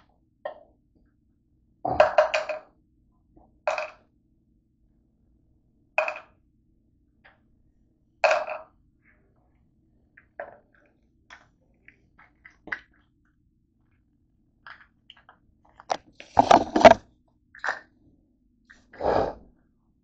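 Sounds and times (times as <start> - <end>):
person eating: 16.2 - 17.0.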